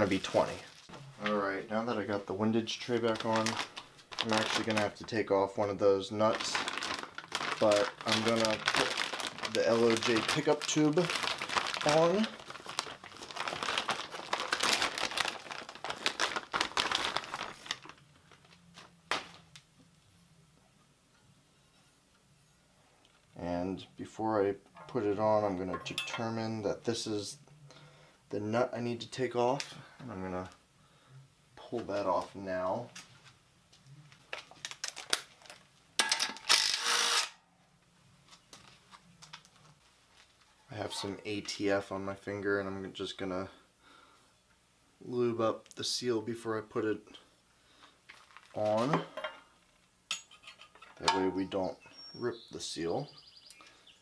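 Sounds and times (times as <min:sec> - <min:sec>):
plastic bag crinkling: 0:00.0 - 0:01.4, 0:02.5 - 0:19.6, 0:34.1 - 0:37.2, 0:47.7 - 0:49.0.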